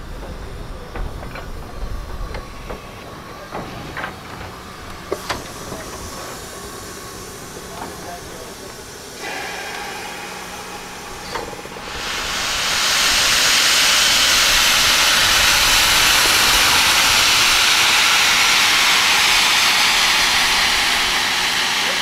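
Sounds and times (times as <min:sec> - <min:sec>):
steam hissing: 0:04.8 - 0:22.0.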